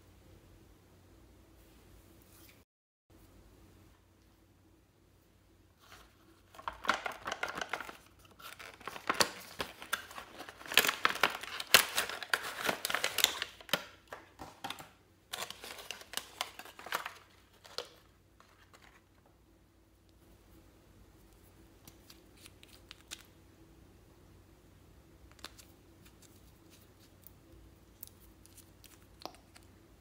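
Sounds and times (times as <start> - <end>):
plastic and cardboard crinkling: 5.8 - 19.3.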